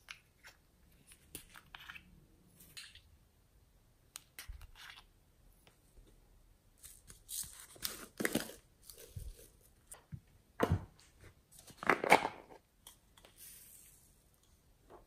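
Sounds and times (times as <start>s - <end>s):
plastic containers rustling and clicking: 11.6s - 12.6s.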